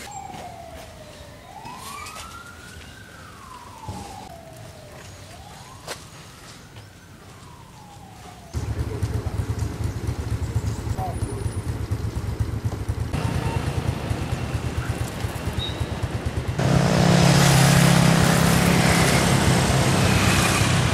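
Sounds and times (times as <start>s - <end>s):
wailing siren: 0.0s - 9.7s, 16.5s - 20.9s.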